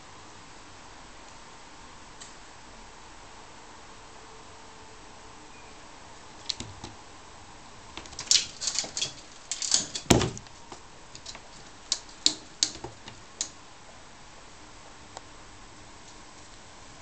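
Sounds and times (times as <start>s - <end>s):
cat claws scraping on insect screen: 8.0s - 10.5s, 11.1s - 13.5s
heavy thump: 9.8s - 10.5s.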